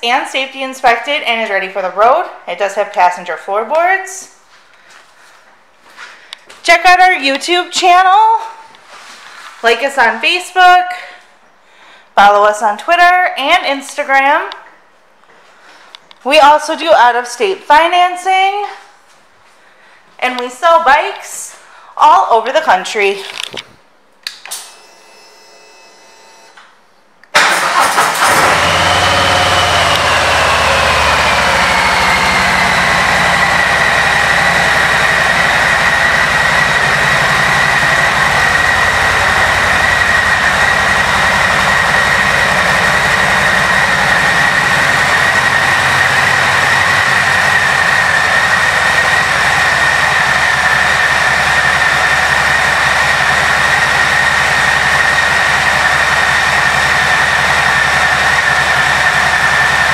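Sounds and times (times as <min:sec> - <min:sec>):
motorcycle engine starting and idling: 0:27.3 - 0:59.9
high whine: 0:28.4 - 0:59.9.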